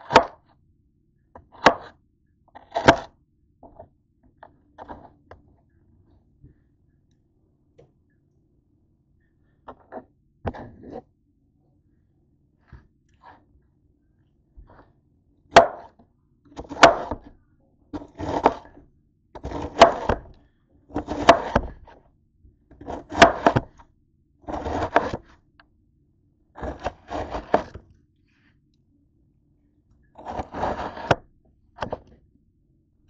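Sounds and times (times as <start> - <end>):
knife slicing cabbage on a board: 16.6 - 17.2, 18.0 - 18.7, 19.4 - 20.3, 21.0 - 21.7, 22.8 - 23.7, 24.5 - 25.2, 26.6 - 27.8, 30.2 - 31.2.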